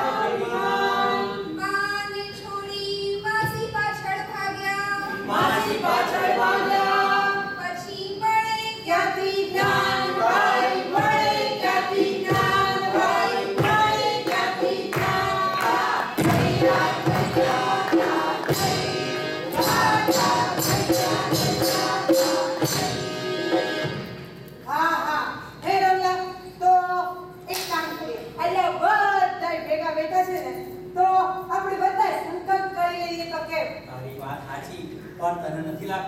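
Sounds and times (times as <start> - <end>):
group of voices singing: 0.0 - 1.6, 5.0 - 7.7, 8.8 - 23.3
drum beats: 9.5 - 24.4.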